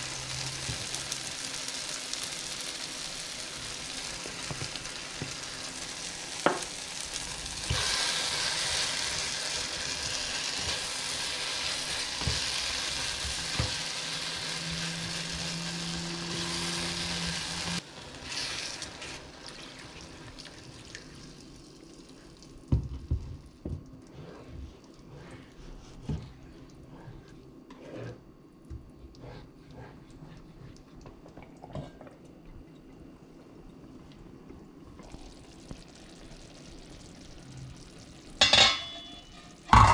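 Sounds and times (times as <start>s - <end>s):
vegetables sizzling in a pan: 0.0s - 22.3s
spatula scraping a pan: 27.0s - 28.2s, 38.4s - 39.9s.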